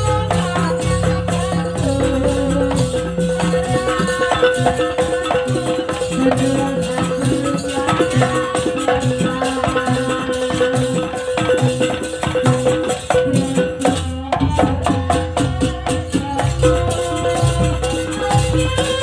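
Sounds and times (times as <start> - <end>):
struck percussion fast beat: 0.0 - 19.0.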